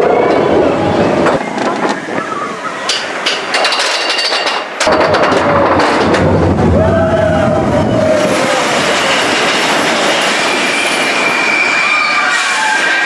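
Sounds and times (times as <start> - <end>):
roller coaster wheels rumbling: 0.0 - 13.0
high wheel squeal: 7.1 - 13.0.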